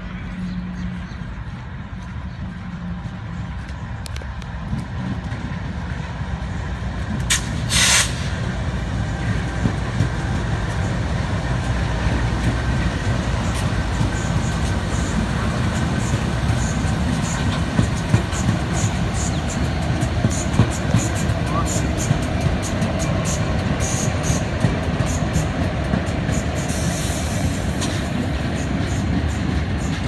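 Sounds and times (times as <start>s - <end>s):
diesel locomotive engine rumble: 0.0s - 30.0s
short loud hiss: 7.3s - 8.3s.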